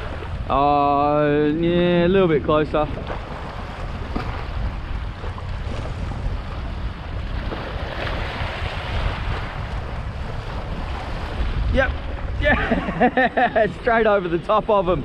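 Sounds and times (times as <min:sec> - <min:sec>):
wind buffeting microphone: 0:00.0 - 0:15.0
waves washing against rocks: 0:02.2 - 0:12.8.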